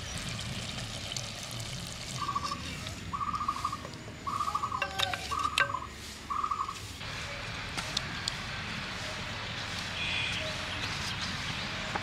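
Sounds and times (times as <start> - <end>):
thick curry bubbling: 0.0 - 3.0
bird trilling: 2.2 - 6.8.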